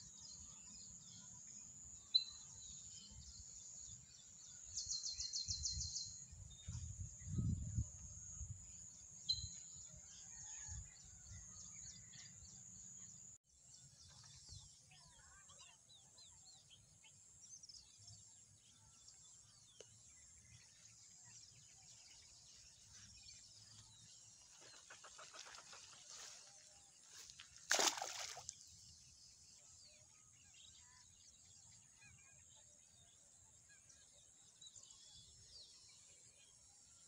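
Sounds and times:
small birds chirping: 12.0 - 37.0.

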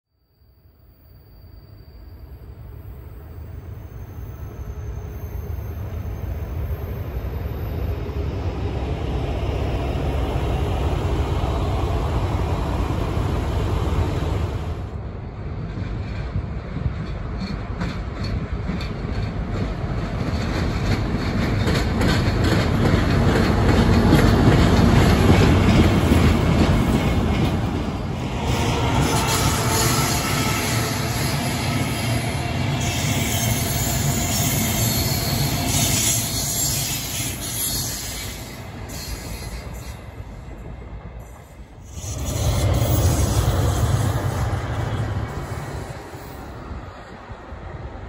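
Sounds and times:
diesel locomotive rumble: 5.0 - 48.0
wheels clicking over rail joints: 15.7 - 28.0.

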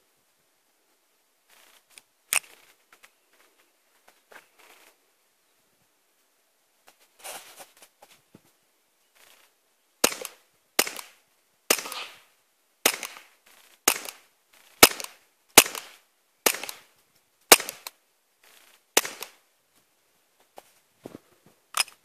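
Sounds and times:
suppressed pistol shots: 10.0 - 14.2, 14.8 - 16.9, 17.5 - 18.0, 19.0 - 19.4.

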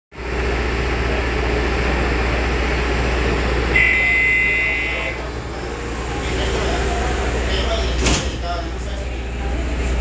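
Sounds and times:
low hum inside rail car: 0.2 - 10.0.

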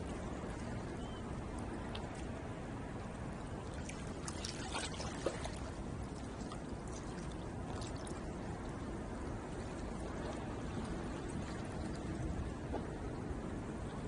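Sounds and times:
water lapping at shore: 0.0 - 14.0
small water splashes: 3.5 - 12.6.

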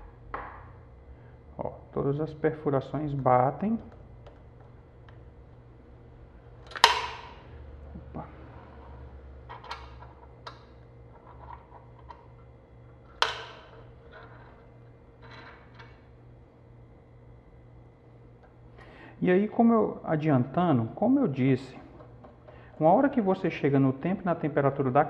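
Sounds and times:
metal clicks and rattles: 9.5 - 12.4, 13.1 - 14.6.

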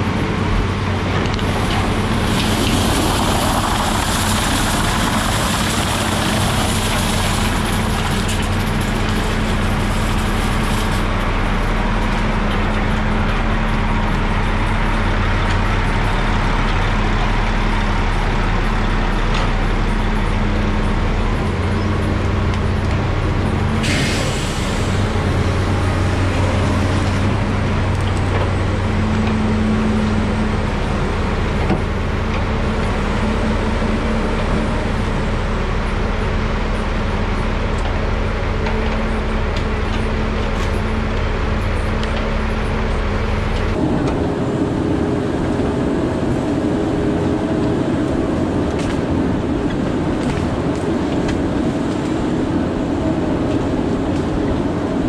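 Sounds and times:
heavy diesel engines running: 0.0 - 55.0
air hiss: 23.8 - 25.1.

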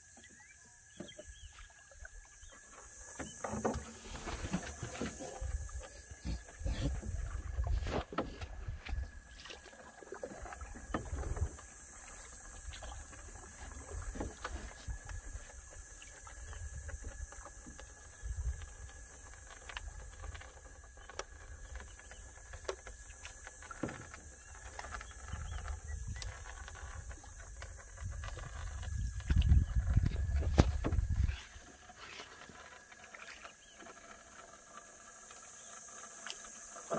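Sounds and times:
faint water sounds: 0.0 - 36.9
small knocks on boat: 3.1 - 9.6, 10.2 - 11.6, 21.0 - 31.5
wind rumble on microphone: 4.3 - 9.4, 12.6 - 19.0, 25.0 - 31.6.

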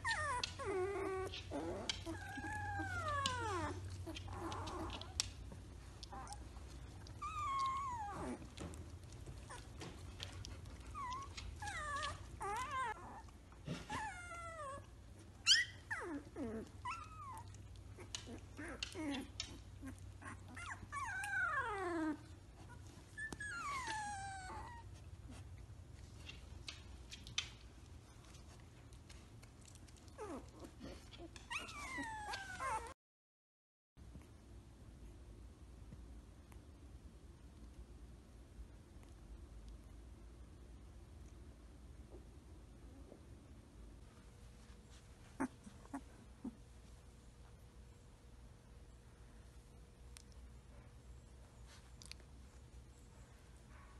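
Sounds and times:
puppies whimpering and squealing: 0.0 - 5.4, 6.0 - 25.5, 30.1 - 33.0, 45.4 - 46.6.

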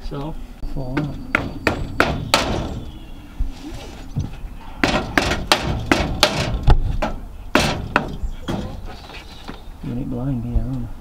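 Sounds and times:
sharp knocks on wood: 0.9 - 2.8, 4.8 - 8.8.

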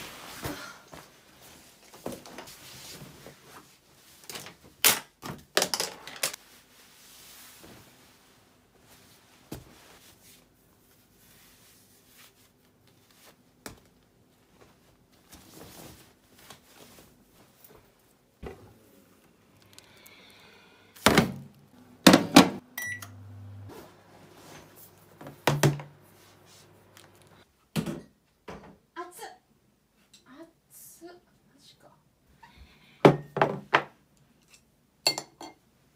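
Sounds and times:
microwave oven humming: 21.8 - 24.4.

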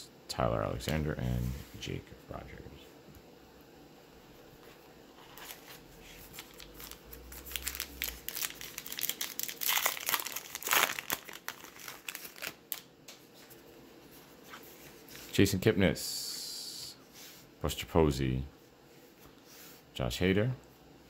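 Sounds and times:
wrapper crinkling and tearing: 6.2 - 12.9.

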